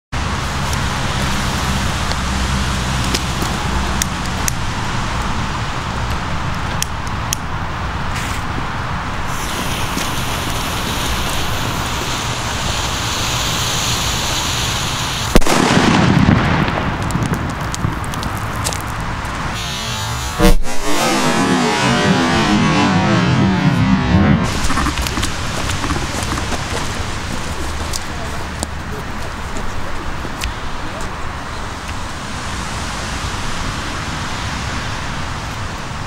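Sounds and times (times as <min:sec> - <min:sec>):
firecracker fuse hissing: 0:09.3 - 0:16.2
firecracker bang: 0:15.3 - 0:18.0, 0:19.5 - 0:25.9
low rumbling echo: 0:19.5 - 0:27.2.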